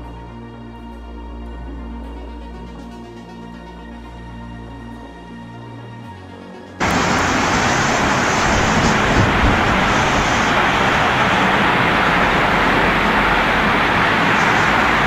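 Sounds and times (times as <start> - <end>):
heavy rain: 6.8 - 15.0
strong wind: 6.8 - 15.0.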